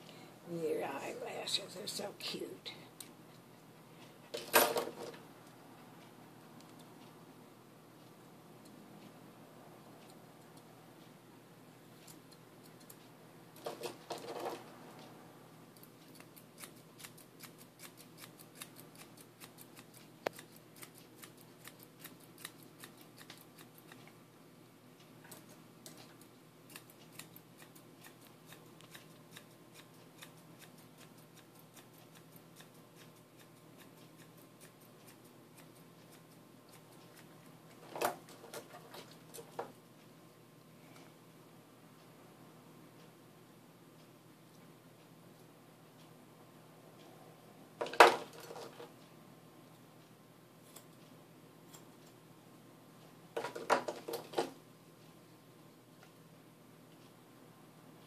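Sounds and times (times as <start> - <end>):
grooming shears snipping fur: 15.8 - 24.2, 25.3 - 39.4.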